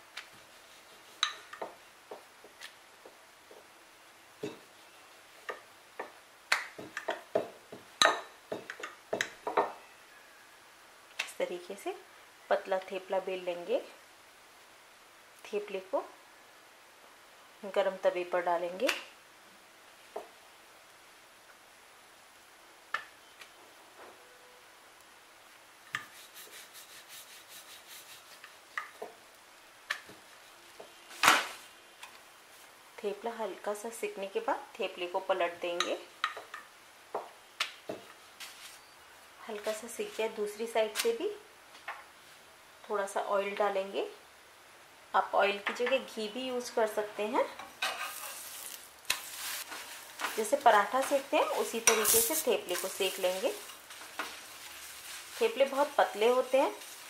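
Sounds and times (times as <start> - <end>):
dough rubbing: 0.3 - 1.3, 26.0 - 29.0, 48.0 - 57.0.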